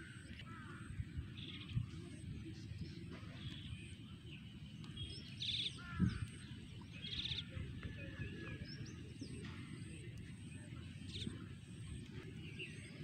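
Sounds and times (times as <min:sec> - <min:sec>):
birds calling: 0:00.0 - 0:09.8.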